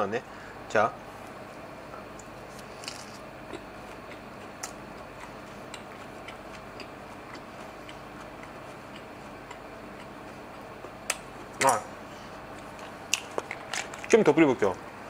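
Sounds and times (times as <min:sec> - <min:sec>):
low background hum: 0:00.0 - 0:15.0
person chewing food: 0:02.5 - 0:11.5.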